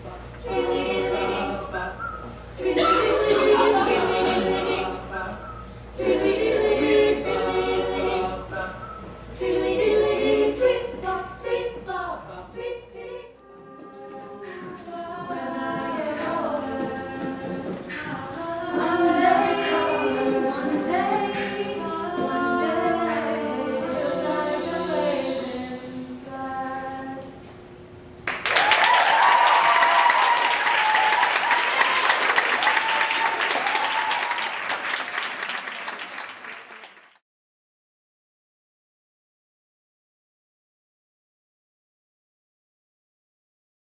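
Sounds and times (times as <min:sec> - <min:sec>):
audience applause: 0:28.2 - 0:37.2
audience cheering and whooping: 0:28.5 - 0:35.0.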